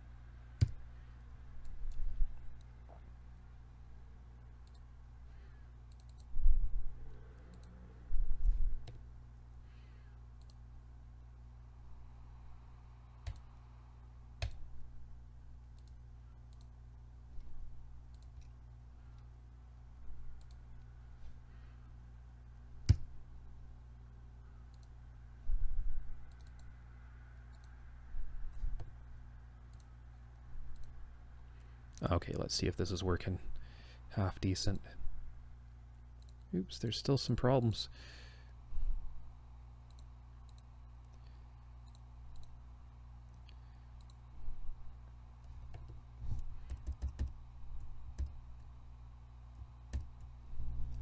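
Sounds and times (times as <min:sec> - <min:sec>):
steady low hum: 0:00.0 - 0:51.0
computer mouse clicking: 0:00.6 - 0:00.8, 0:04.6 - 0:04.9, 0:05.9 - 0:06.3, 0:07.1 - 0:07.8, 0:08.8 - 0:09.0, 0:10.4 - 0:10.6, 0:13.2 - 0:13.5, 0:14.4 - 0:14.7, 0:15.7 - 0:16.7, 0:18.1 - 0:19.3, 0:20.4 - 0:20.6, 0:24.7 - 0:25.0, 0:26.3 - 0:26.7, 0:27.5 - 0:27.8, 0:29.7 - 0:29.9, 0:30.7 - 0:31.0, 0:39.9 - 0:42.6, 0:43.3 - 0:44.2, 0:45.4 - 0:48.7, 0:49.6 - 0:50.3.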